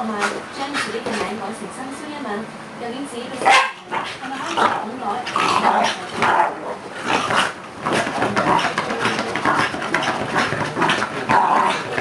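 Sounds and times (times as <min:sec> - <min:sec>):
dog growling and grunting: 0:03.9 - 0:12.0
dog claws scratching cushion: 0:05.5 - 0:12.0.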